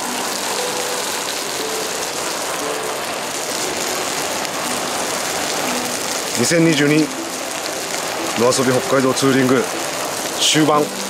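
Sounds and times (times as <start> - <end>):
meat sizzling on griddle: 0.0 - 11.0.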